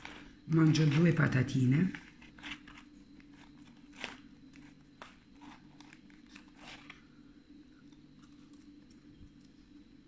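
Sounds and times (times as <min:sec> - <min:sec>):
refrigerator hum: 0:00.0 - 0:10.0
person chewing fries: 0:02.0 - 0:07.1.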